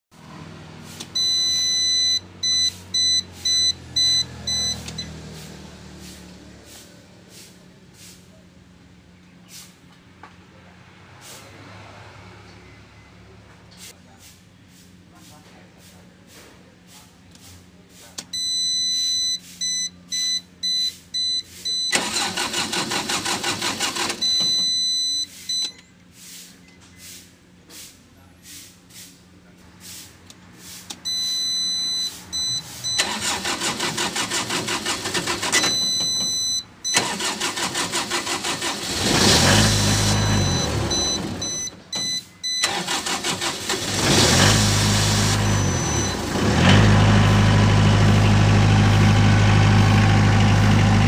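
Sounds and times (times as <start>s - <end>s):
control panel buzzer beeping: 1.2s - 5.1s, 18.3s - 22.4s, 24.2s - 25.7s, 35.5s - 37.4s, 40.1s - 43.2s, 45.4s - 46.2s
warning buzzer beeping: 1.2s - 5.2s, 31.0s - 37.8s, 39.3s - 43.4s, 44.4s - 46.3s
starter motor cranking engine: 21.9s - 24.4s, 32.9s - 36.2s, 36.9s - 41.6s, 42.6s - 51.0s.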